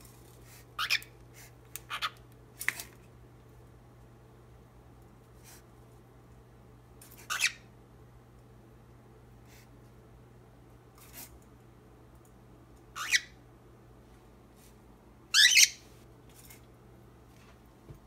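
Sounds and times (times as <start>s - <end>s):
steady low hum: 0.0s - 18.0s
cockatiel harsh calls: 0.8s - 1.1s, 1.9s - 2.2s, 7.2s - 7.7s, 13.0s - 13.4s, 15.3s - 15.8s.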